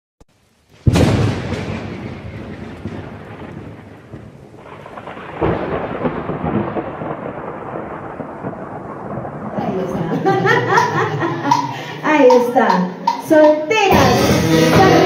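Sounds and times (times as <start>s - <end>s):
rain-like rushing noise: 0.3s - 12.1s
thunder-like rumble: 0.8s - 11.8s.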